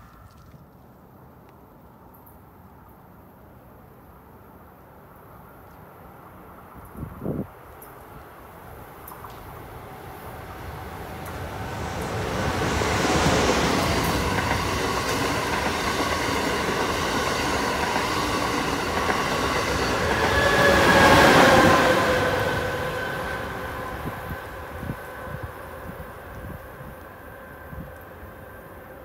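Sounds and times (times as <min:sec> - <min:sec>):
train passing at speed: 0:06.1 - 0:29.0
train whine: 0:09.4 - 0:29.0.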